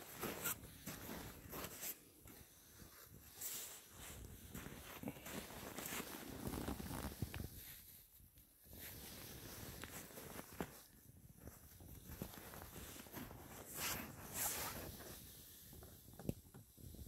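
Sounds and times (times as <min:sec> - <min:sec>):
footsteps in snow: 0:00.0 - 0:07.1.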